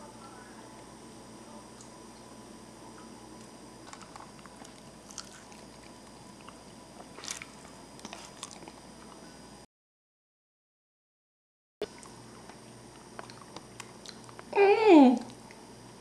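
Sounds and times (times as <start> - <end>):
person chewing chicken: 3.9 - 8.8, 11.8 - 14.5
wet mouth clicks and smacks: 11.9 - 14.5.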